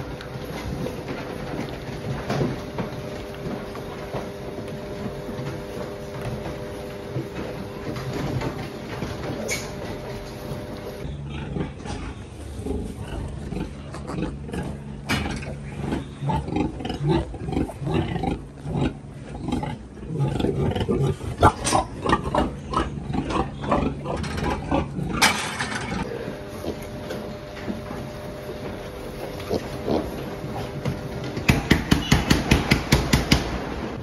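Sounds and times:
machine hum: 0.0s - 34.0s
piglets grunting and squealing: 11.1s - 26.9s, 29.1s - 30.8s.

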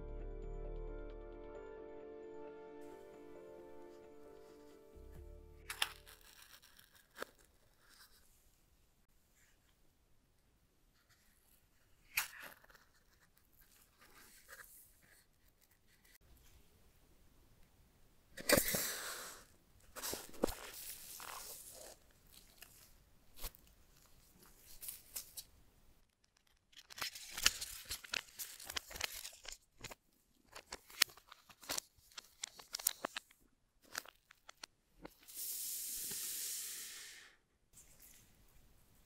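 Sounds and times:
paper wrap rustling and crinkling: 5.6s - 8.3s, 19.9s - 25.5s, 26.1s - 34.7s.

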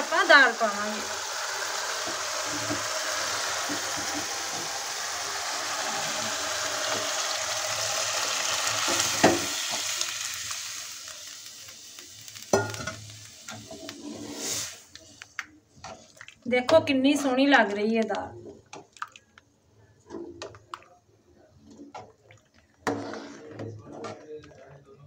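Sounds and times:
food sizzling in a pan: 0.0s - 16.1s
lentils pouring into pan: 0.4s - 14.9s.

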